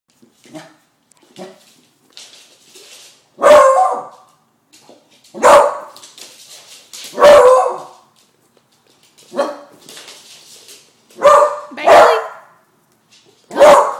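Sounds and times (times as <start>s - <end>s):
dog barking: 3.4s - 4.2s, 5.4s - 6.0s, 7.1s - 8.0s, 9.3s - 9.7s, 11.2s - 12.6s, 13.5s - 13.9s.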